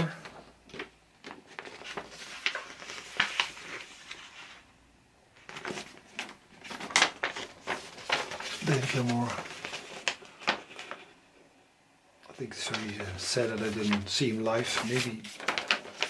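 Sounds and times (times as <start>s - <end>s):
paper rustling: 0.0s - 4.7s, 5.4s - 11.2s, 12.4s - 16.0s.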